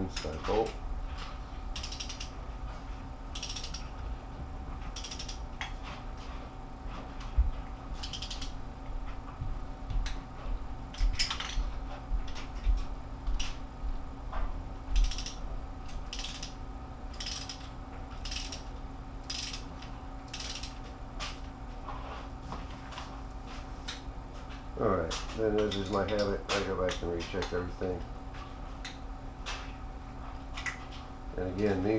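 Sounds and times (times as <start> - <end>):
socket ratchet clicking: 1.8 - 2.3, 3.3 - 3.9, 5.0 - 5.4, 8.0 - 8.5, 15.0 - 15.4, 16.1 - 17.6, 18.2 - 18.6, 19.2 - 19.6, 20.3 - 20.8.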